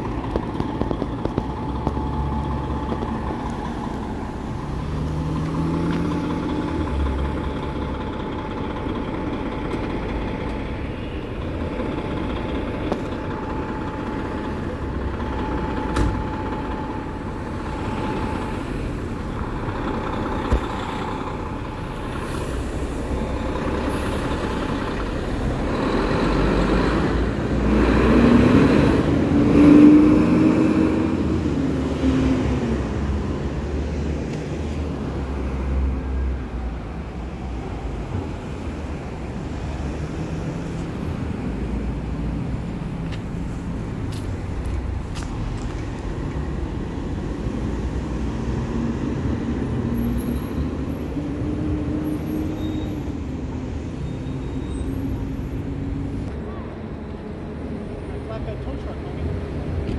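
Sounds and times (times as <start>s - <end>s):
engine revving: 0.0s - 10.6s, 11.6s - 36.1s
fire engines running: 0.0s - 59.9s.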